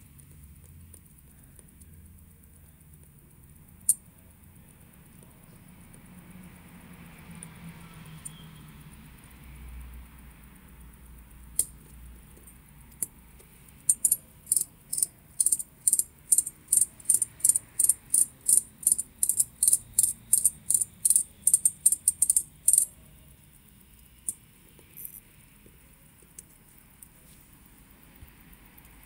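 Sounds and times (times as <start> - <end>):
watch crown tiny metallic clicks: 10.1 - 23.0.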